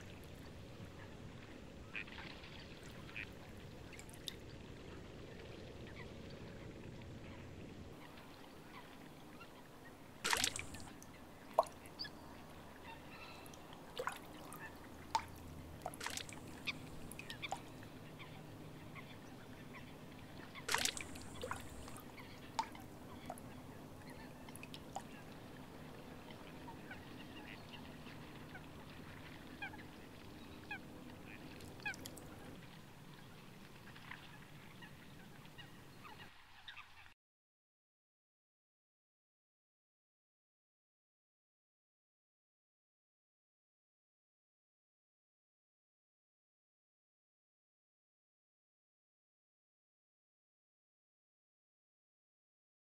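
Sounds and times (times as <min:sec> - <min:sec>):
bird calls: 0:08.0 - 0:37.1.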